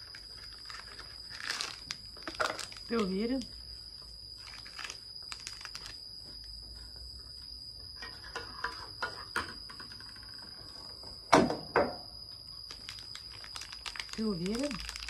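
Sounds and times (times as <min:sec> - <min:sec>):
plastic wrapper crinkling: 0:00.0 - 0:03.5, 0:04.4 - 0:06.0, 0:12.6 - 0:15.0
sharp wrapper snaps: 0:04.4 - 0:06.0, 0:12.7 - 0:15.0.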